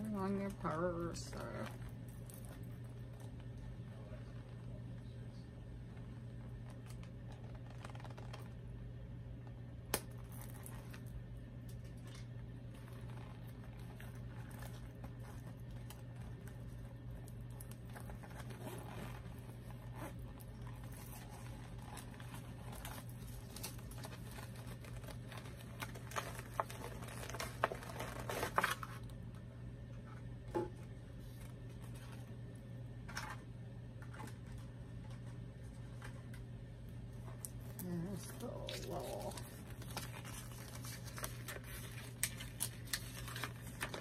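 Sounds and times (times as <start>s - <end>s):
steady low hum: 0.0s - 44.0s
tissue paper crinkling: 6.6s - 8.6s, 11.8s - 29.2s, 37.1s - 44.0s.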